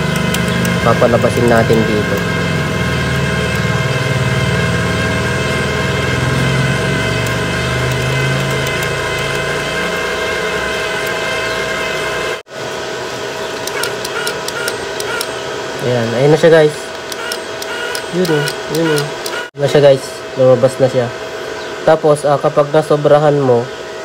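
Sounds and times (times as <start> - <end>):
wire-feed motor humming: 0.0 - 24.0.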